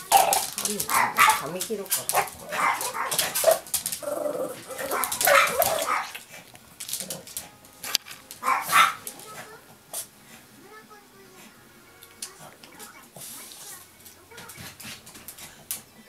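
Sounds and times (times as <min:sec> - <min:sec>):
small dog barking sharply: 0:00.9 - 0:01.4, 0:08.4 - 0:09.0.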